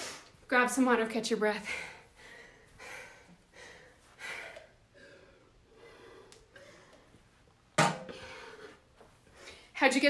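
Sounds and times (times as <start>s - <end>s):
person breathing hard: 1.6s - 7.3s, 8.1s - 9.7s.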